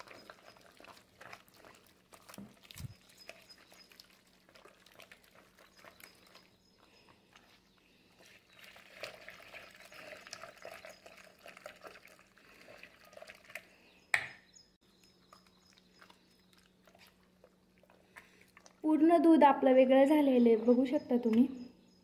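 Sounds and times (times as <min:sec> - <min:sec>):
whisk churning cream: 0:00.0 - 0:06.5, 0:08.2 - 0:13.6.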